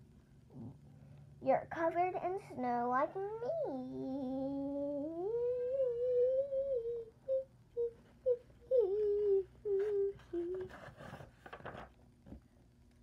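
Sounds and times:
child humming: 3.2s - 10.8s.

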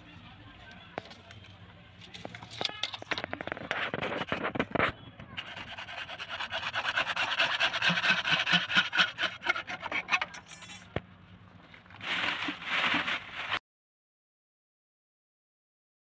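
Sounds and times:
hacksaw cutting plastic pipe: 5.4s - 11.0s
plastic bag rustling: 11.7s - 13.6s.

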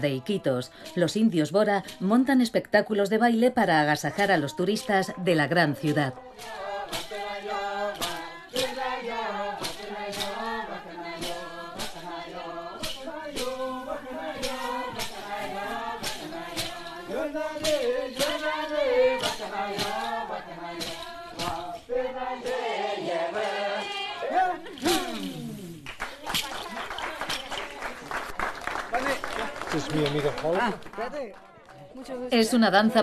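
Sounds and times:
group chanting in unison: 4.1s - 26.0s.

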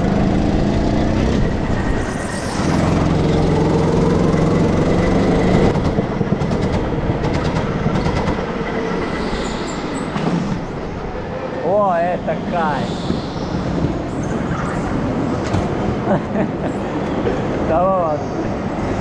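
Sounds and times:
go-kart engine revving: 0.0s - 8.8s.

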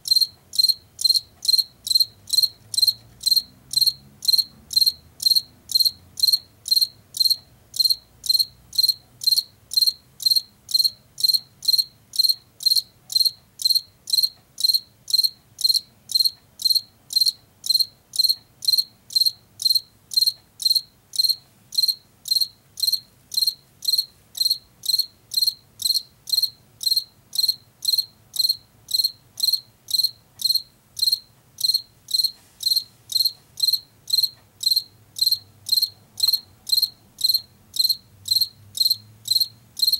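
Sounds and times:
cricket chirping: 0.0s - 39.9s.

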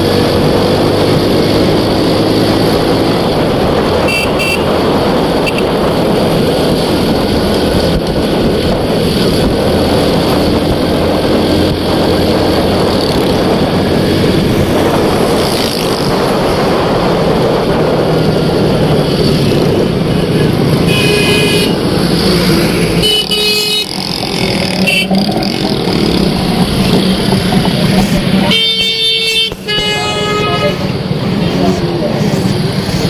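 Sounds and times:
motorcycle engine running: 0.0s - 33.0s
road and wind noise: 0.0s - 33.0s
vehicle horns honking: 4.0s - 4.8s, 5.4s - 5.8s, 20.8s - 21.9s, 23.0s - 25.4s, 28.4s - 31.0s.

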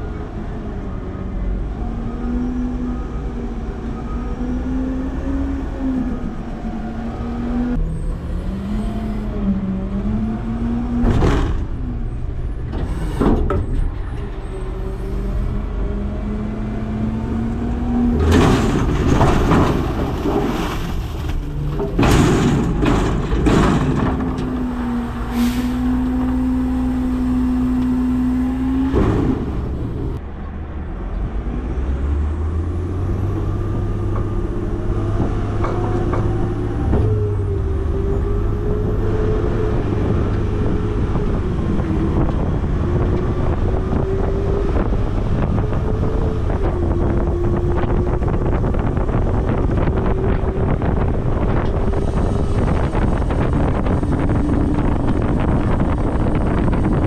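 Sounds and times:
garbage truck engine running: 17.0s - 30.2s
rattling clatter of waste dumped: 18.1s - 26.6s.

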